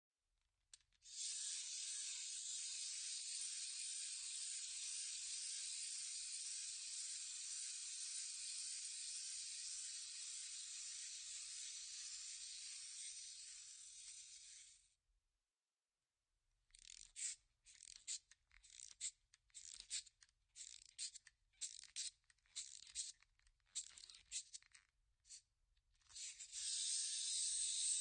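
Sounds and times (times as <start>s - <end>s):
clockwork mechanism whirring: 1.0s - 14.8s, 26.1s - 28.0s
toy click: 16.7s - 25.4s, 26.0s - 28.0s.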